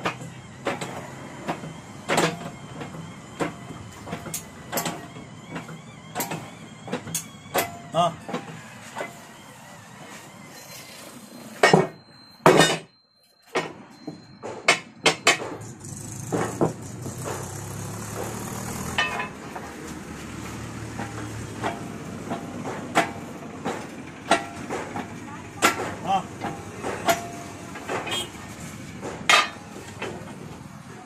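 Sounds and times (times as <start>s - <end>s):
metal clanks from bending press: 18.9s - 19.8s, 29.0s - 30.4s.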